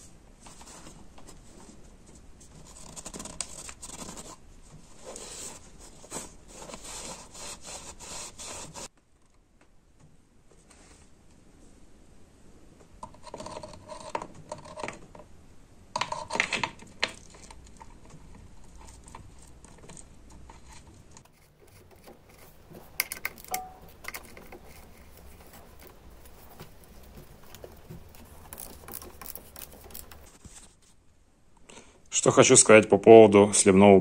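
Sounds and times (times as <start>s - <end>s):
hand tools and small parts rattling: 16.0s - 30.7s.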